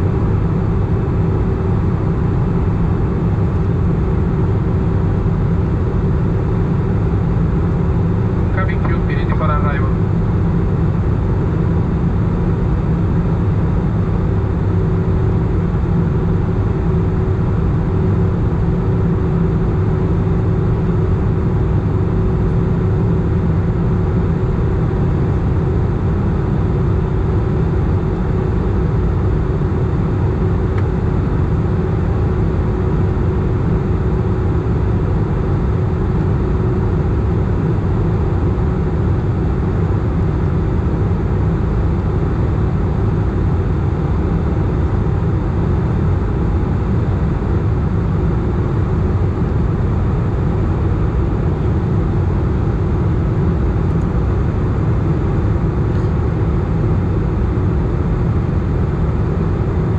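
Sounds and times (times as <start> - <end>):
engine and airflow rumble: 0.0 - 59.9
thin steady hum: 4.1 - 10.4.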